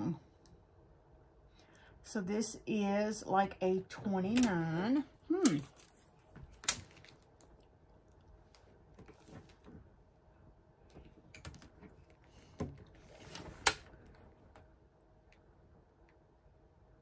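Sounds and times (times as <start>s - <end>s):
faint clicks and rustles: 4.3s - 16.2s.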